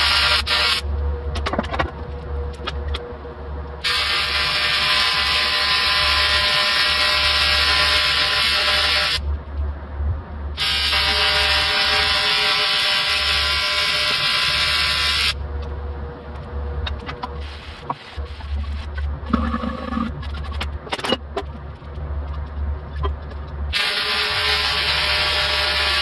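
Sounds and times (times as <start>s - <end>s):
welding arc buzzing: 0.0s - 0.9s, 3.8s - 9.2s, 10.6s - 15.4s, 23.7s - 26.0s.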